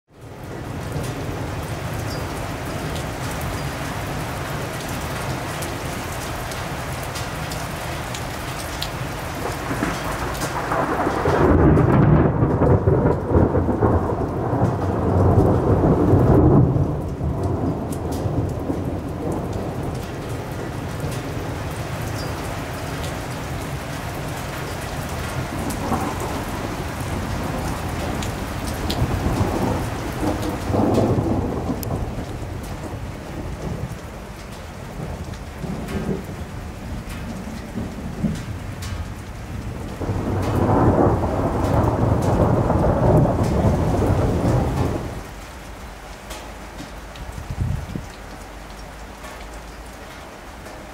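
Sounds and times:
steady rain: 0:00.1 - 0:50.9
rolling thunder rumble: 0:09.2 - 0:45.5, 0:47.2 - 0:48.2.

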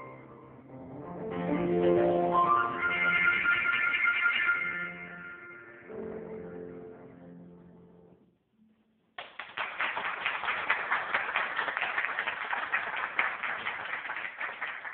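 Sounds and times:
piano chord: 0:00.0 - 0:08.3
audience applauding: 0:09.2 - 0:14.9.

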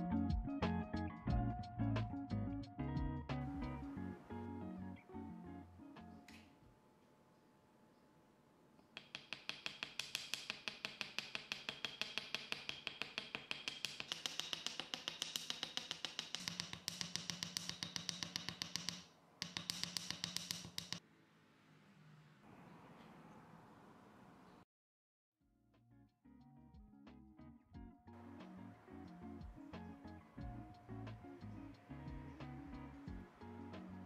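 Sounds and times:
metal hammer tapping on steel block: 0:09.0 - 0:21.0.

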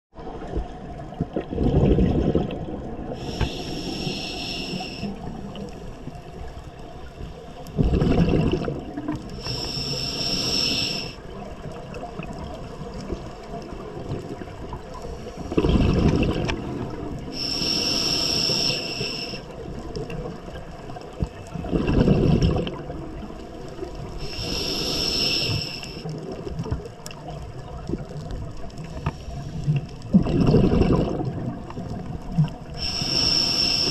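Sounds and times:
exhaled bubbles rumbling: 0:00.2 - 0:09.4, 0:11.2 - 0:17.5, 0:19.5 - 0:33.9
hissing regulator inhalation: 0:03.2 - 0:05.7, 0:09.3 - 0:11.2, 0:17.3 - 0:19.5, 0:24.2 - 0:26.0, 0:32.8 - 0:33.9.

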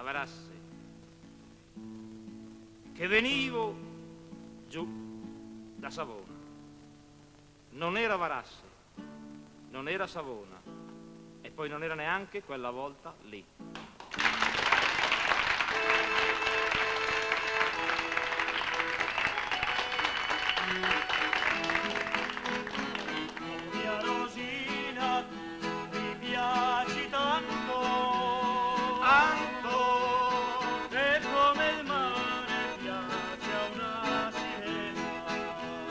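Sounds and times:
acoustic guitar: 0:00.0 - 0:35.9
accordion: 0:15.6 - 0:35.9
person singing: 0:19.8 - 0:35.9.

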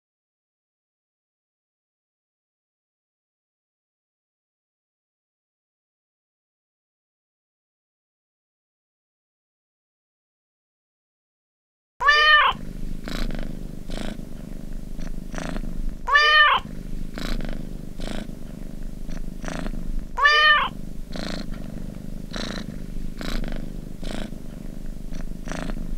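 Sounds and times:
cat meowing: 0:12.0 - 0:12.6, 0:16.0 - 0:16.7, 0:20.2 - 0:20.8
cat purring: 0:12.0 - 0:25.9.

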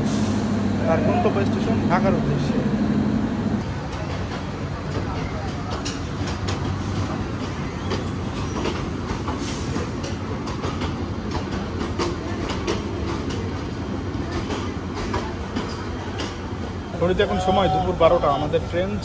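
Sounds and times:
train passing rumble: 0:00.0 - 0:19.0
wheels clattering over rail joints: 0:03.6 - 0:17.0.

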